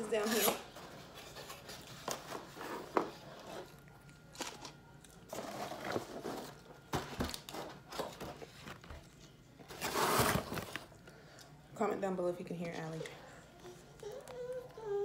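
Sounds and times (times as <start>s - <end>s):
chewing and crunching food: 1.4s - 6.6s.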